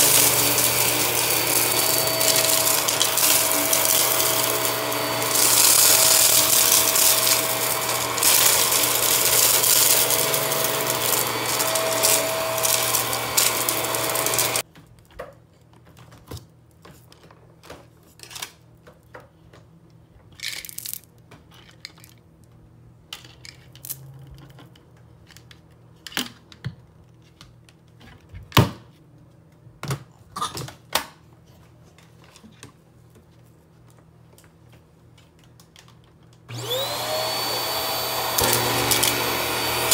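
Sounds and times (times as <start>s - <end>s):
cordless vacuum motor hum: 0.0s - 14.6s, 36.5s - 39.9s.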